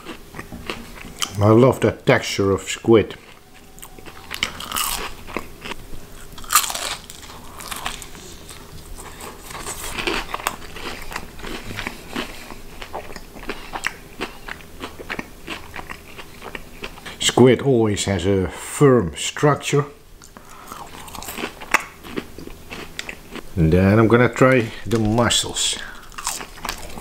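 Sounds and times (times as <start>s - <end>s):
crunching fried batter while chewing: 0.0s - 1.4s, 3.1s - 17.2s, 20.2s - 23.4s, 25.8s - 27.0s.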